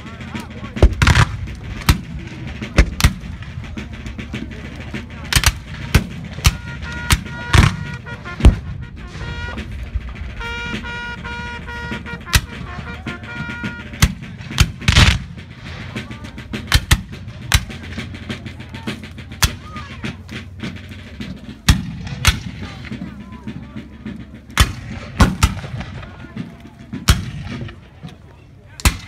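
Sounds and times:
held musical notes: 0.0s - 28.4s
musket shots: 0.8s - 3.5s, 14.0s - 17.9s.

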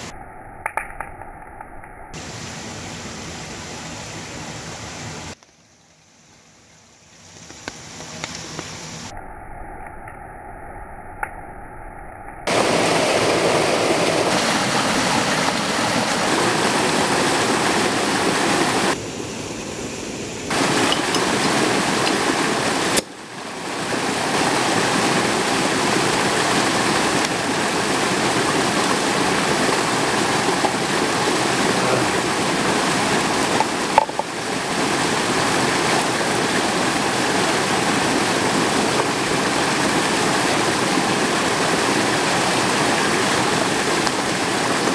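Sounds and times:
mountain stream rushing: 12.5s - 44.9s.

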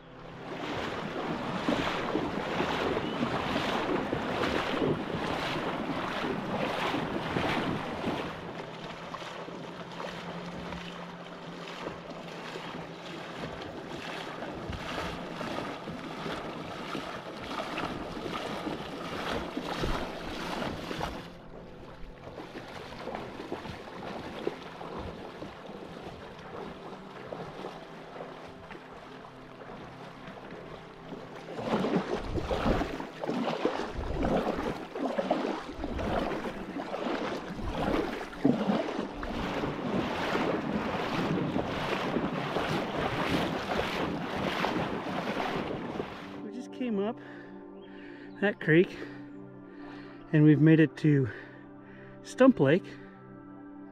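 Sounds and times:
creek water splashing: 0.0s - 53.2s
wind noise on microphone: 31.7s - 33.0s, 33.8s - 34.8s.

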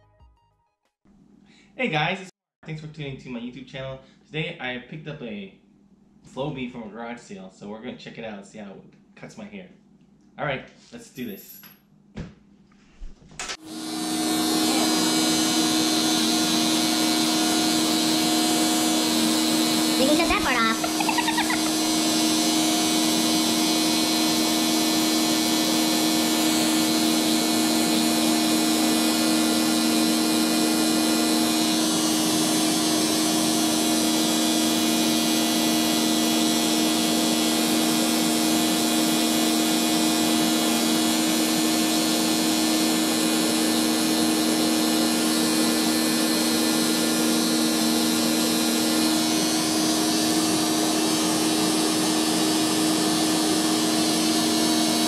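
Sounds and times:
vacuum cleaner motor humming: 13.6s - 55.0s.

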